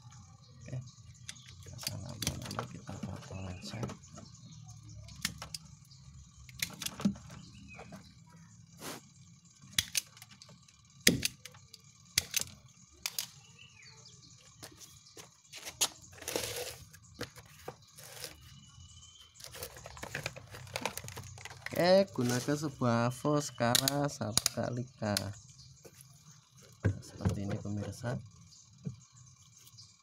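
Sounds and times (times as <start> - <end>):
pliers snipping wires: 23.7 - 24.6.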